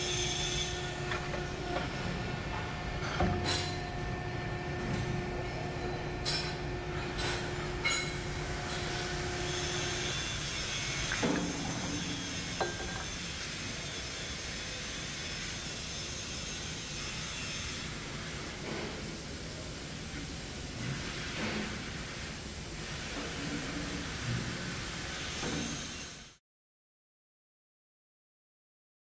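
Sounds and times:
hydraulic press humming: 0:00.0 - 0:14.5
workshop background noise: 0:00.0 - 0:26.4.

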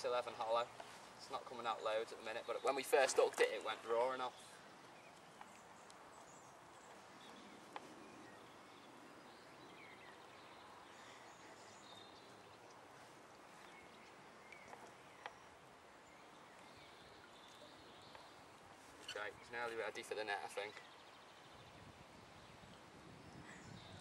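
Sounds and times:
distant birds chirping: 0:00.0 - 0:24.0.

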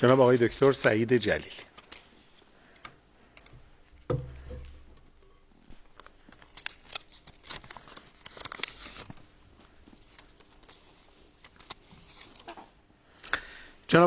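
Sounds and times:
paper crackling: 0:05.9 - 0:12.6.

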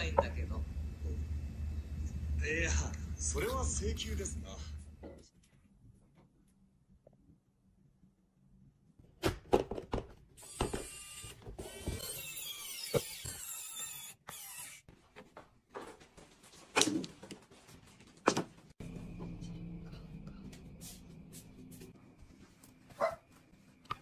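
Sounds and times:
electric screwdriver whirring: 0:10.4 - 0:14.8.

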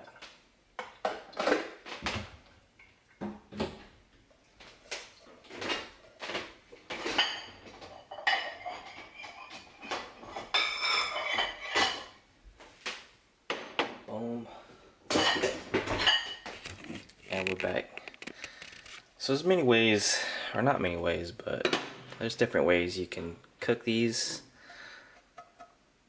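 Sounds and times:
pots and dishes clanking: 0:05.5 - 0:12.2, 0:15.1 - 0:16.6.

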